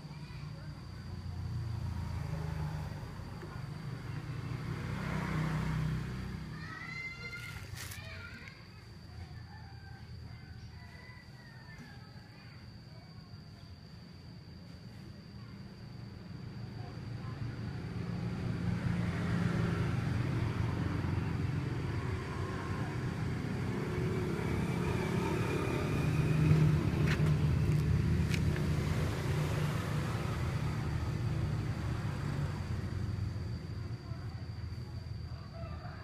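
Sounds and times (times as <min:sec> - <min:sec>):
motor vehicle rumbling: 0:00.0 - 0:09.2, 0:17.5 - 0:36.0.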